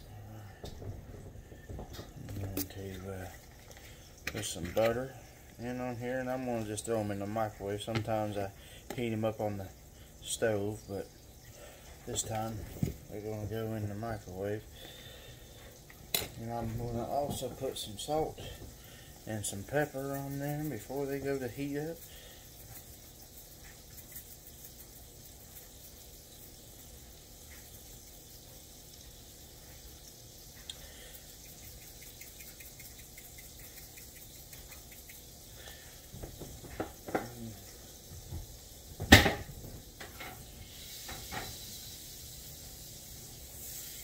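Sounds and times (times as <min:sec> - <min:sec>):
shakers shaking with rapid ticking: 0:19.2 - 0:38.9.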